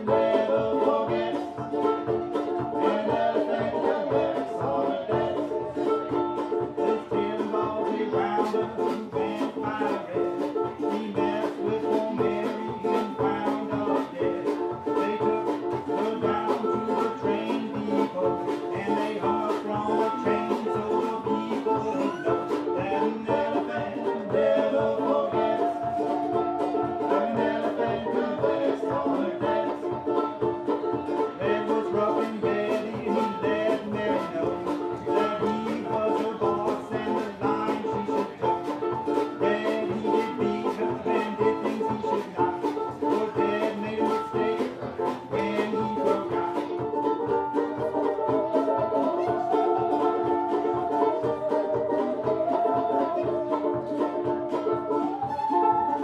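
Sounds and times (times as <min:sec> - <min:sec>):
banjo picking: 0:00.0 - 0:56.0
strummed rhythm: 0:00.0 - 0:56.0.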